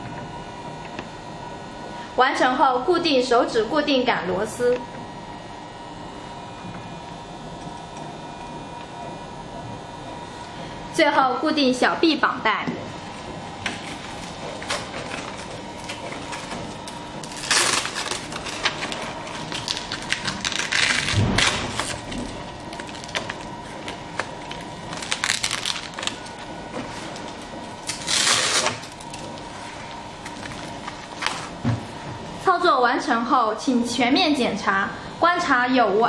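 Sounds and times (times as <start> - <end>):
strap ripping: 15.9 - 23.4, 24.2 - 26.4, 27.8 - 29.4.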